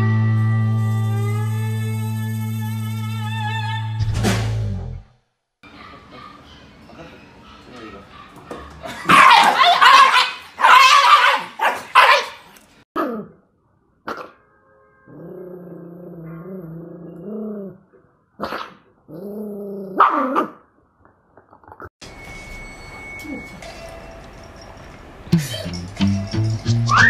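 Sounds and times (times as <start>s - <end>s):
dogs barking: 5.6s - 12.5s, 14.1s - 14.4s, 20.0s - 20.6s
dog growling: 15.1s - 17.8s.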